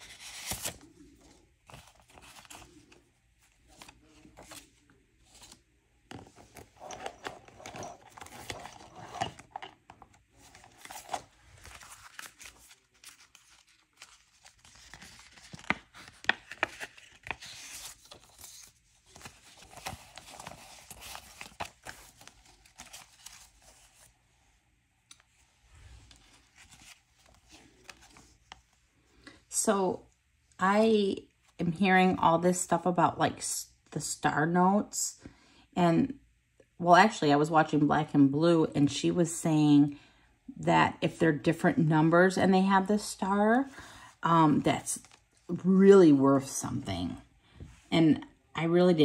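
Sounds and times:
banknotes rustling and crinkling: 0.0 - 24.2, 25.1 - 29.3.

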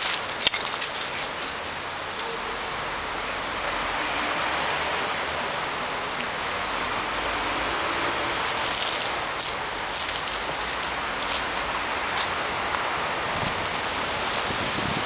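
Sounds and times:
rustling bursts: 0.0 - 2.3, 8.3 - 15.0
outdoor noise haze: 0.0 - 15.0.

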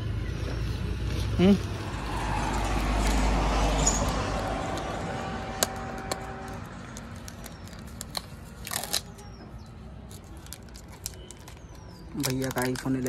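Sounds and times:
packaging ripping: 5.7 - 9.3, 10.1 - 13.0
packaging crinkling: 5.9 - 9.3, 10.0 - 13.0.

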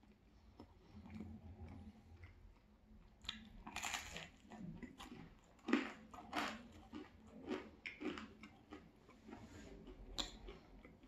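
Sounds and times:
chewing crispy pizza: 0.0 - 11.0
wet mouth sounds: 7.4 - 11.0.

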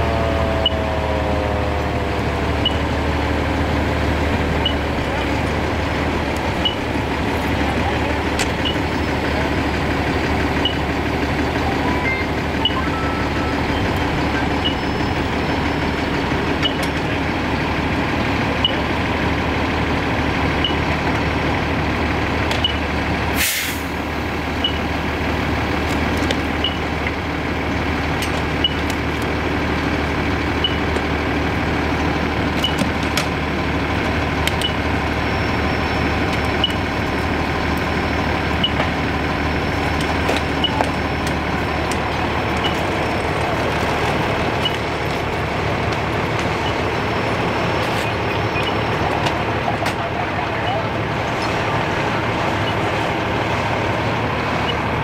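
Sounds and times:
diesel engine running: 0.0 - 55.0
air brake hiss: 23.4 - 23.9.

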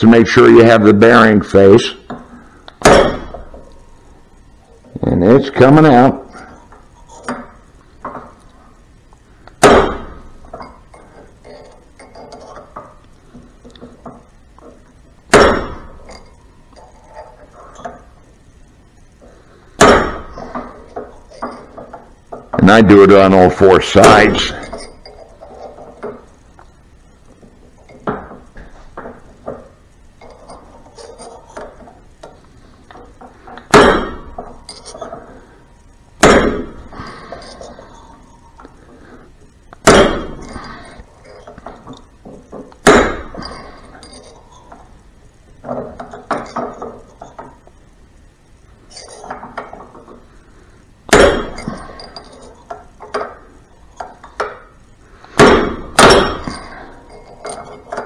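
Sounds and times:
hammer striking steel punch: 2.8 - 3.5, 9.6 - 10.2, 15.3 - 16.0, 19.8 - 20.3, 33.7 - 34.3, 36.2 - 36.8, 39.8 - 40.5, 42.8 - 43.4, 51.1 - 51.8, 55.4 - 56.6.

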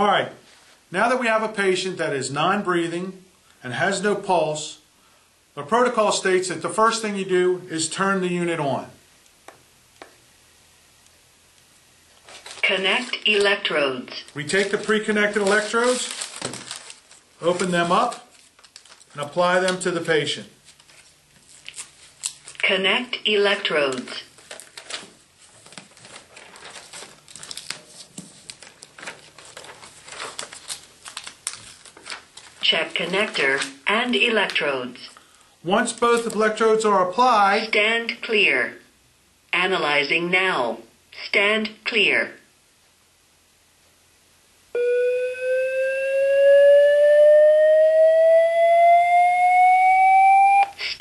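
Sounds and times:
electrode pads packaging crinkling: 12.1 - 22.8, 23.4 - 36.6
rising defibrillator charging tone: 44.8 - 50.8.

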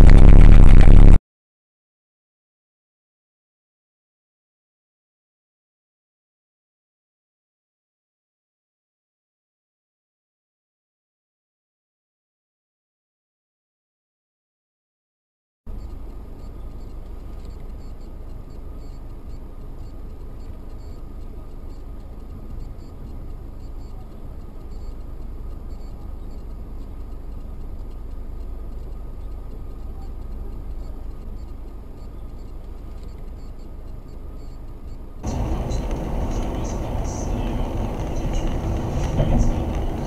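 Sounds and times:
car road and engine rumble: 0.0 - 1.2, 15.7 - 40.0
loud noise: 0.0 - 1.2, 35.2 - 40.0.

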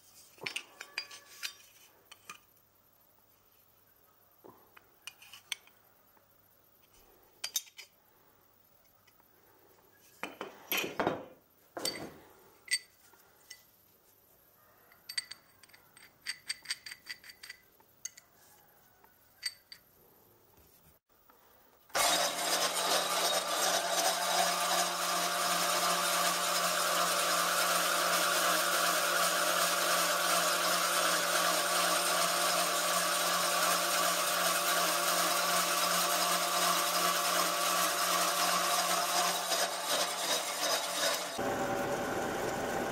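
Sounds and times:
metallic clinks and taps: 11.8 - 13.7, 14.9 - 18.3
band saw cutting steel: 22.0 - 42.9.

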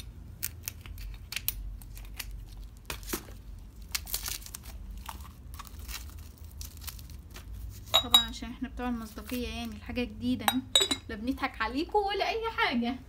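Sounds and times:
plastic wrapping crinkling: 0.7 - 8.0.

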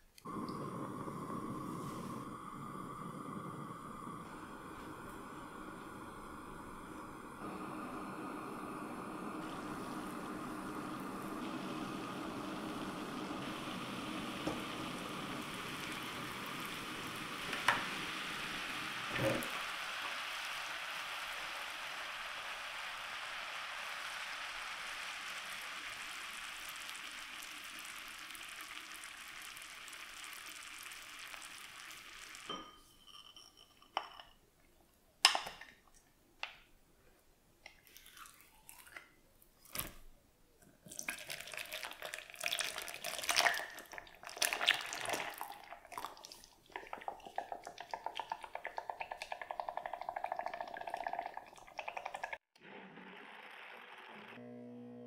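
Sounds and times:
sugar syrup boiling: 0.0 - 34.2, 37.7 - 40.1, 40.7 - 52.5
kitchenware knocking and clinking: 32.5 - 34.3.

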